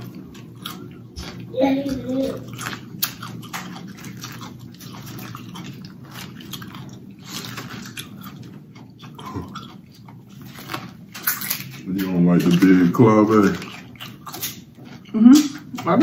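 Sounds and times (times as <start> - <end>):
crunching and chewing food: 0.0 - 16.0.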